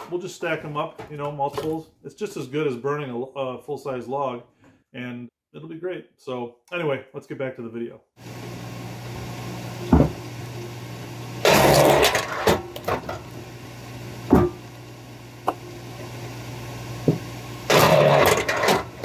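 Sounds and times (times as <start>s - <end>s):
log splitter motor hum: 8.2s - 19.0s.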